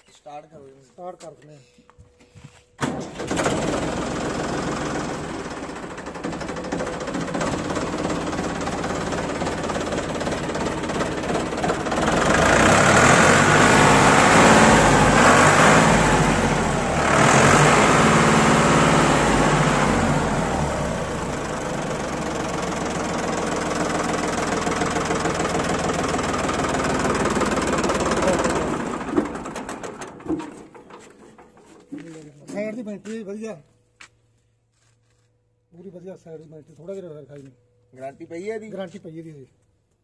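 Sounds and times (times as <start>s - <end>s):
tractor diesel engine running: 2.8s - 32.7s.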